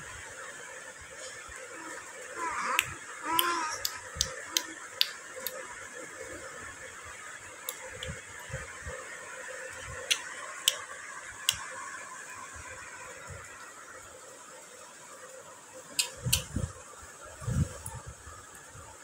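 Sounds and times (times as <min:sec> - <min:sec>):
steady background hum: 0:00.0 - 0:19.0
sharp finger snaps: 0:02.7 - 0:05.6, 0:10.1 - 0:10.8.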